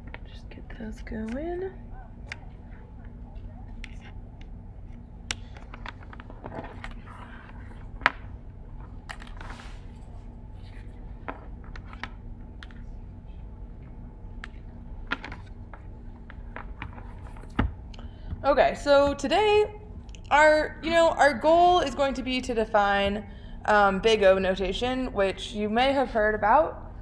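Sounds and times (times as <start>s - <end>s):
low room hum: 0.0s - 27.0s.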